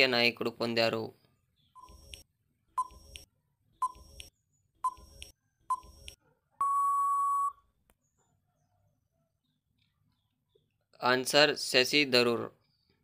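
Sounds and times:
short beeps: 6.6 - 7.6.

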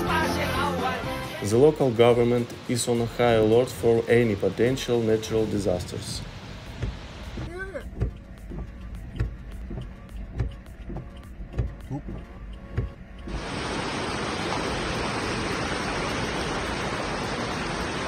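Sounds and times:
floodwater rushing: 0.0 - 8.0, 13.3 - 18.0
low thumps inside car: 6.2 - 13.4.

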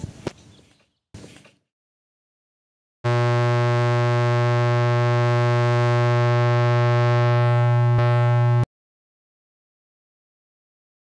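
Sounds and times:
low synthesized buzzing drone: 3.0 - 8.7.

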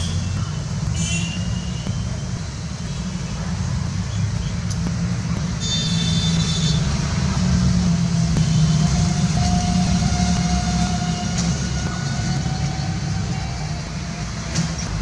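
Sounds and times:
low rumble: 6.3 - 15.0.

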